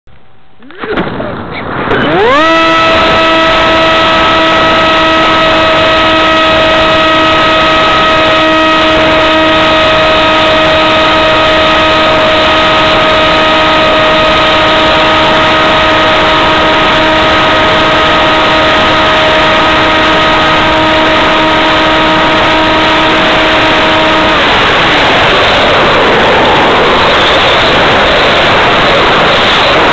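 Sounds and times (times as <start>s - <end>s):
electric motor and propeller whine: 1.7s - 29.9s
rush of air: 12.0s - 29.9s.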